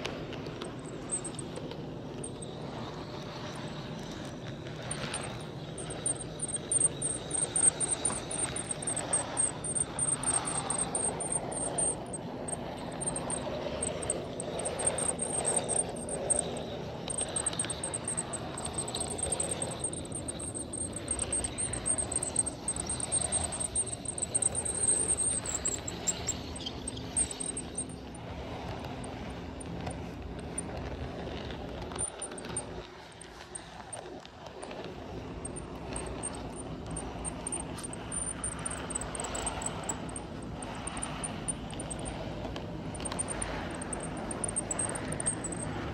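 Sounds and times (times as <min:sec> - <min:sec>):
rapid high-pitched chirping: 0:00.7 - 0:01.5, 0:04.8 - 0:28.2, 0:35.4 - 0:42.2, 0:43.0 - 0:45.9.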